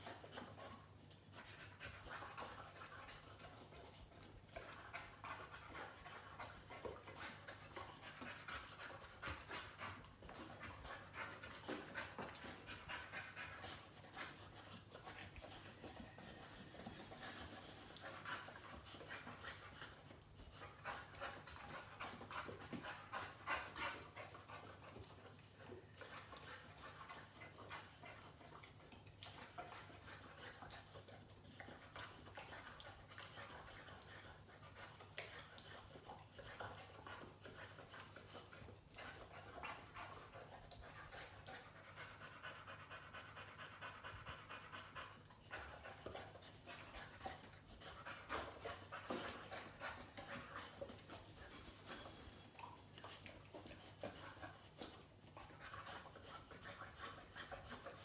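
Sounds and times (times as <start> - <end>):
dog panting: 0.0 - 58.0.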